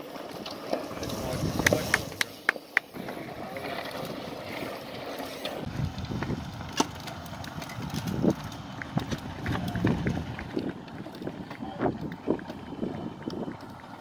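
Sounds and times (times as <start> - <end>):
bike tyres crunching on dirt: 0.0 - 14.0
wind on microphone: 1.0 - 2.2, 5.6 - 6.7, 7.4 - 13.6.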